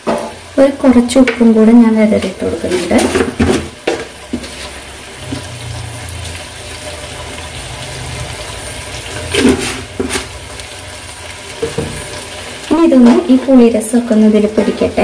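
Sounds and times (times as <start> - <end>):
faint hiss from pan: 0.0 - 15.0
stirring in wok: 2.1 - 10.6.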